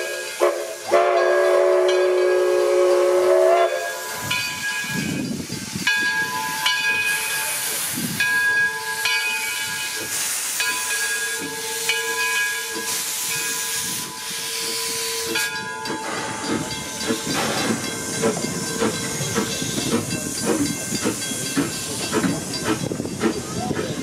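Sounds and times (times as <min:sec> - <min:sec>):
steam locomotive hissing: 0:00.0 - 0:24.0
engine knocks and clanks: 0:15.8 - 0:24.0.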